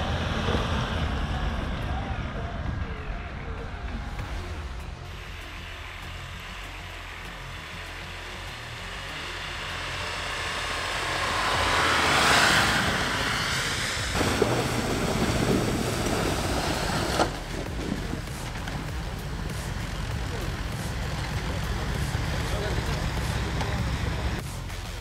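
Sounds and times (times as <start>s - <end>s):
pickup engine running: 0.0s - 25.0s
tyres churning snow: 0.0s - 25.0s
rushing water: 14.1s - 18.4s.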